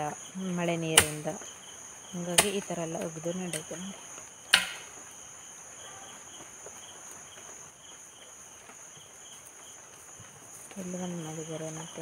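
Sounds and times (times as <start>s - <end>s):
high insect drone: 0.0s - 12.0s
hoe chopping into soil: 1.0s - 1.3s, 2.3s - 2.7s, 4.5s - 4.9s.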